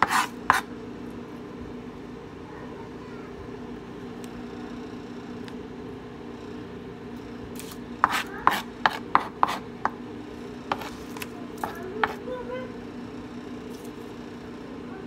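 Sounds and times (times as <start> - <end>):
knife chopping on plastic board: 0.0 - 0.7, 8.0 - 10.0, 10.7 - 12.2
steady low hum: 0.0 - 15.0.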